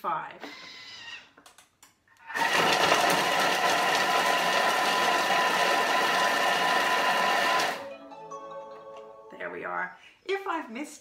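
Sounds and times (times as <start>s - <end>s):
food processor motor whine: 2.2s - 7.8s.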